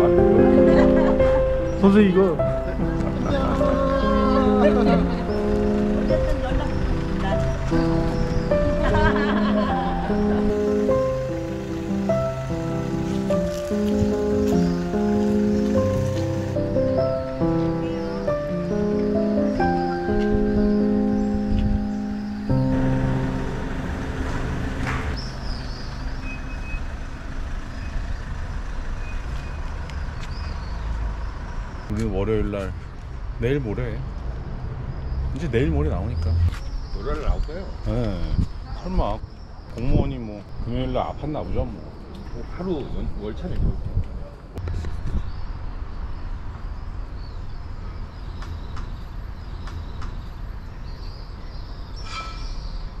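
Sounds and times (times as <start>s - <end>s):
pickup engine running: 0.0s - 29.6s
traffic rumble: 0.0s - 51.9s
wind rumbling on microphone: 36.2s - 45.8s.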